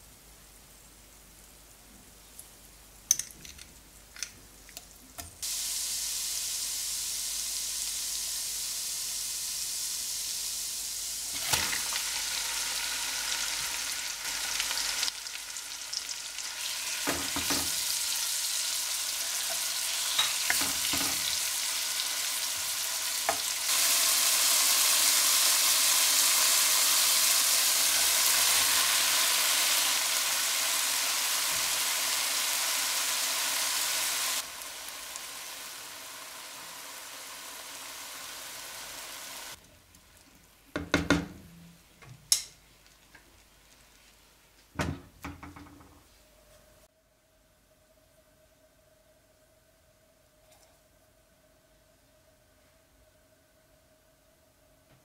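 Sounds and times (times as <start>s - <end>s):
chicken sizzling in butter: 5.4s - 40.3s.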